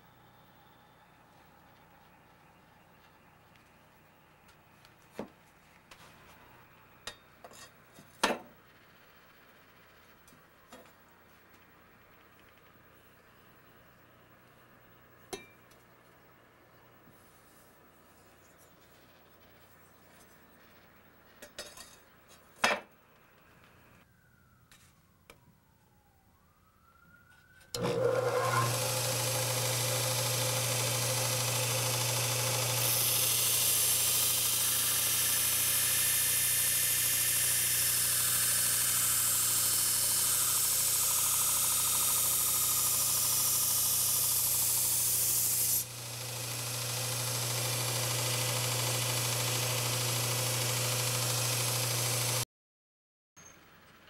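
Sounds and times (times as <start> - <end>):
belt sander humming: 27.8 - 52.4
blade grinding on sanding belt: 27.8 - 52.4.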